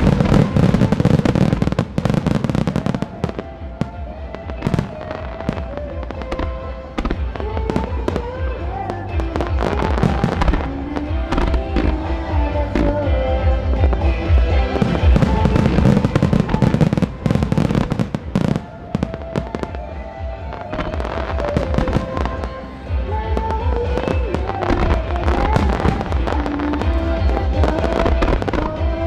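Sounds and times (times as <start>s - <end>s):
fireworks bursting and crackling: 0.0s - 29.0s
music with pulsing bass beat: 0.0s - 29.0s.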